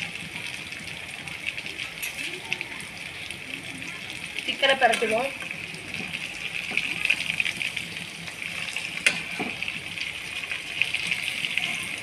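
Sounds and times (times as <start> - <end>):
chicken sizzling in oil: 0.0 - 12.0.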